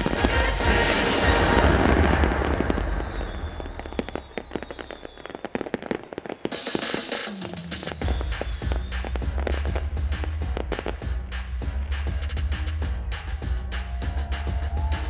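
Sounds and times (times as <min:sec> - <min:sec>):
fireworks booming bursts: 0:00.0 - 0:13.2
crackling firework pops: 0:01.9 - 0:11.5.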